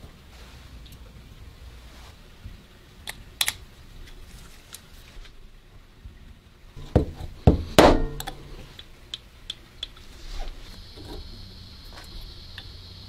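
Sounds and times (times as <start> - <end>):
punch striking metal pin: 6.8 - 8.5.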